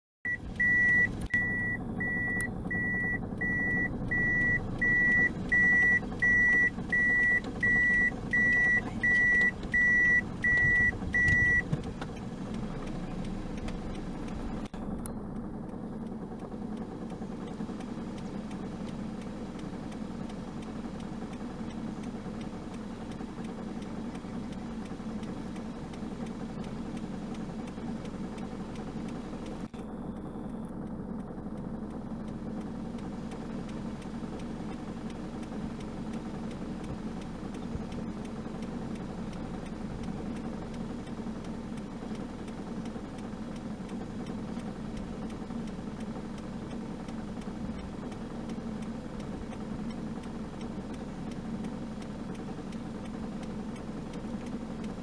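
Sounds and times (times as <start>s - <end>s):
high electronic warning beep: 0.2s - 11.7s
vehicle engine idling: 0.2s - 55.0s.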